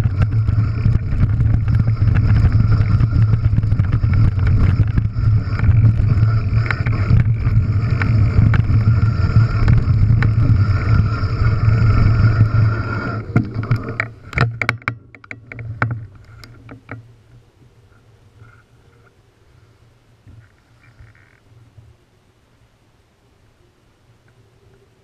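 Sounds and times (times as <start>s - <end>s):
bike rattling over stones: 0.0s - 17.1s
mountain bike tyres rolling: 0.0s - 21.8s.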